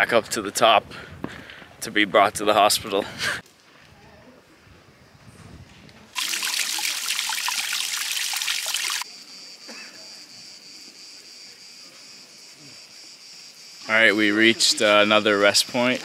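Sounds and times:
water trickling over rocks: 6.2s - 9.0s
insects droning: 6.2s - 16.0s.

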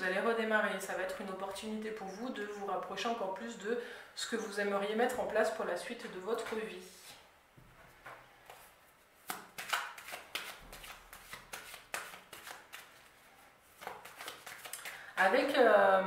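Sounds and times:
cards being shuffled: 8.5s - 15.0s.

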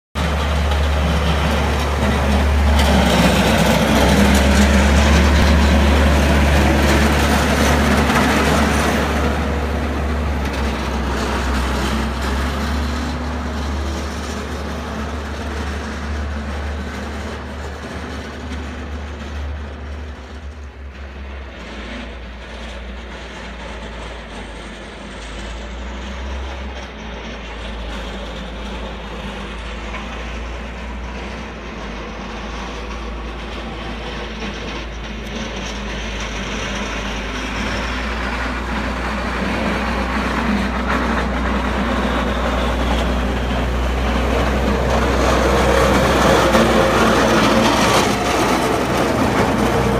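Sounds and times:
diesel engine droning: 0.2s - 49.9s
blade scraping snow: 33.4s - 49.9s.

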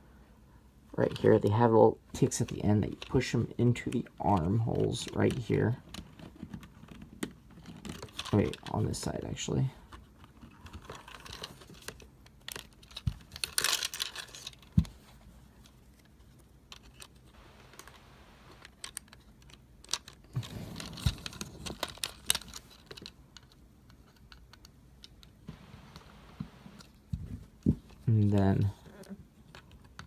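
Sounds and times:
plastic toy parts clicking: 18.6s - 20.3s.

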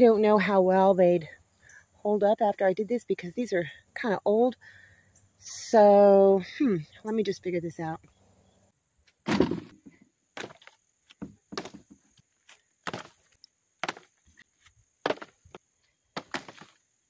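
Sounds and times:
wooden branches clattering: 9.2s - 14.4s, 15.0s - 15.6s, 16.2s - 16.8s.

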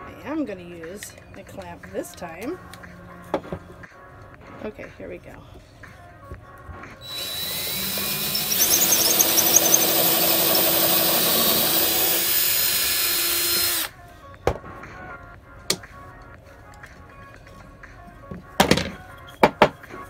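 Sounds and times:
cordless drill boring wood: 7.0s - 13.9s.

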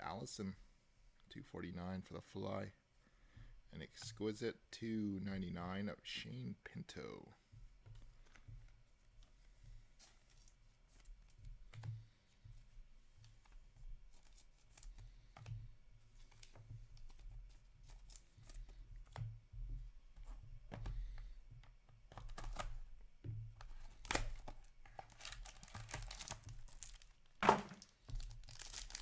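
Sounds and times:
plastic wrapper crinkling and tearing: 23.7s - 29.0s.

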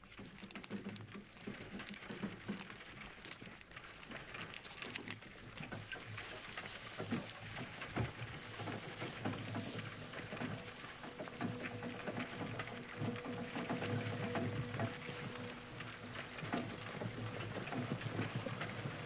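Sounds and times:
soft dense crackling and tapping: 0.0s - 19.0s
steady hiss: 5.7s - 19.0s.

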